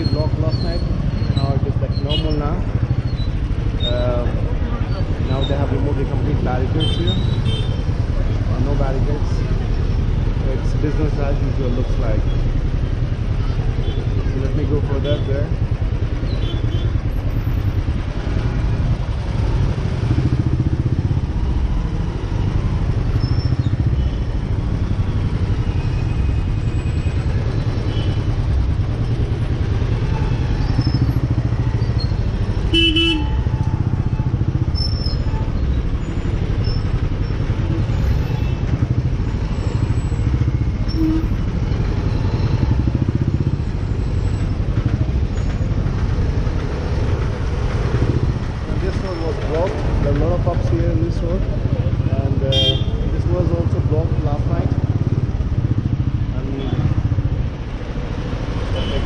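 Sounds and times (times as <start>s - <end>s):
dense city traffic: 0.0s - 59.0s
engine and road rumble: 0.0s - 59.0s
vehicle horn beep: 32.6s - 33.5s, 40.8s - 41.4s, 52.5s - 53.0s, 58.7s - 59.0s.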